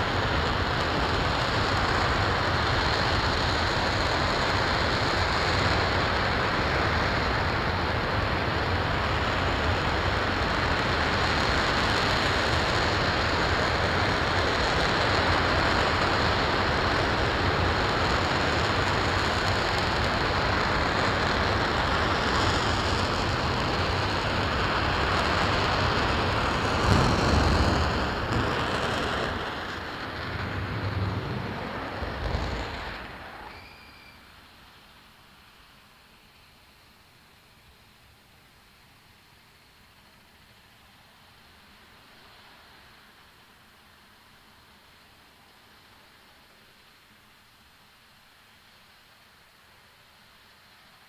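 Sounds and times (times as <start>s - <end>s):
rocket engine roaring: 0.0s - 34.3s.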